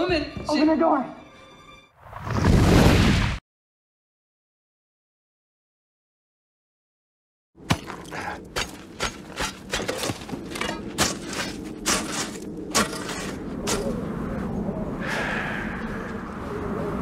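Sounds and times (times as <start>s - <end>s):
hand tool chopping frozen gravel: 7.6s - 13.8s.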